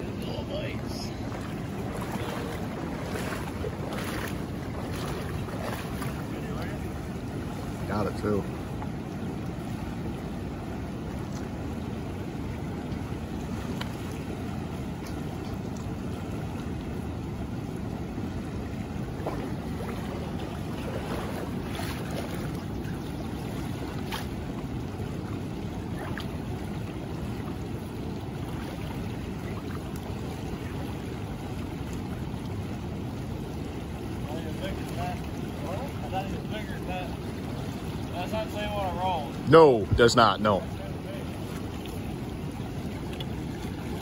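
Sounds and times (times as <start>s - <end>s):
wind rumble on microphone: 0.0s - 38.4s
river current rushing around legs: 0.0s - 44.0s.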